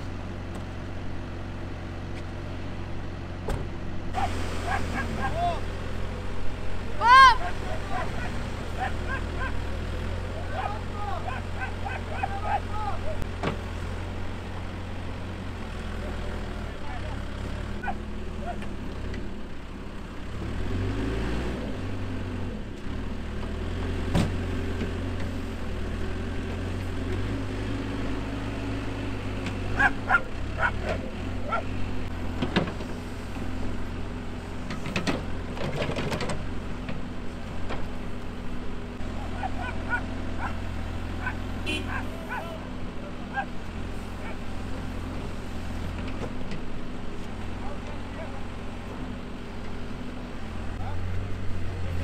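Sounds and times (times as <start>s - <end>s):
diesel engine running: 0.0s - 52.0s.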